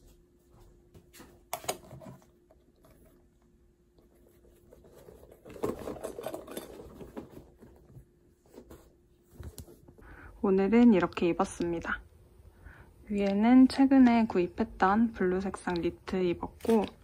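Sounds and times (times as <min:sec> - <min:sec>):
rustling and scraping in bag: 0:04.2 - 0:09.9.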